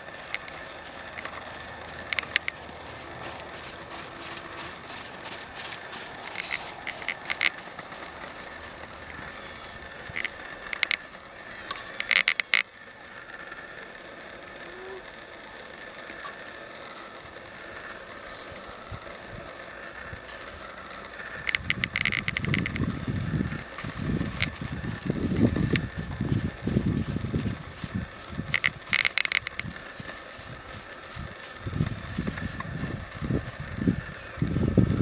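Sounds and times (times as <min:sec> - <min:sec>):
hooves clicking and knocking: 0:00.0 - 0:35.0.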